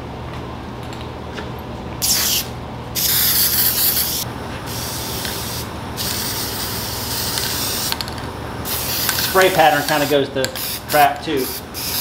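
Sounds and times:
aerosol can hissing: 2.0s - 8.0s, 8.7s - 12.0s.

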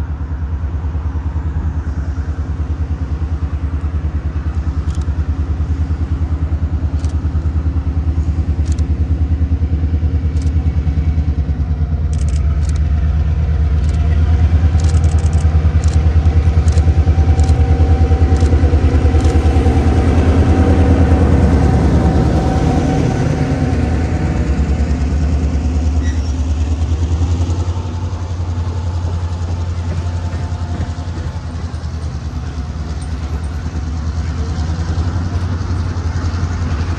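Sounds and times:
diesel locomotive engine running: 0.0s - 36.9s
sharp clicks: 4.8s - 5.2s, 13.7s - 17.6s.

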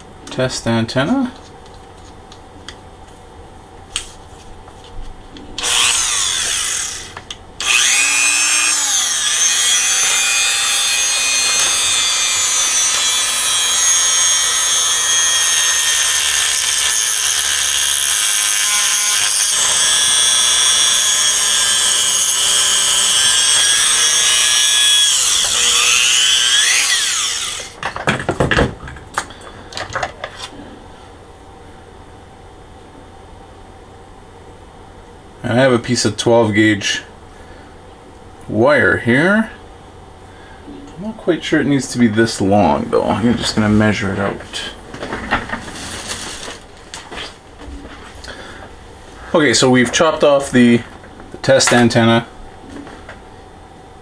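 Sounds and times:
rotary tool cutting whine: 5.6s - 27.8s.

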